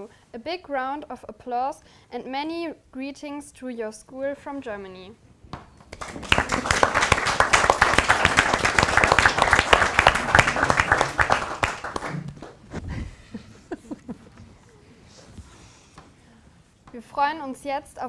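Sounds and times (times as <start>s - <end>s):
group applauding: 5.9s - 12.7s.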